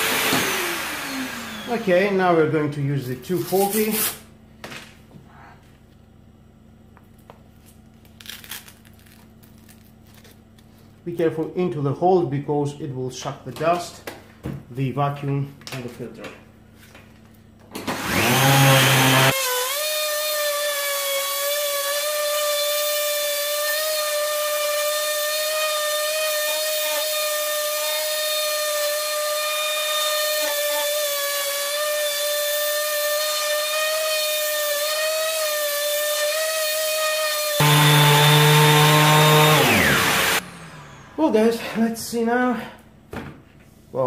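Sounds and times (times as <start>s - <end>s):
orbital sander sanding wood: 0.0s - 2.3s, 18.0s - 20.4s, 23.6s - 41.5s
steady high whine: 39.8s - 42.1s.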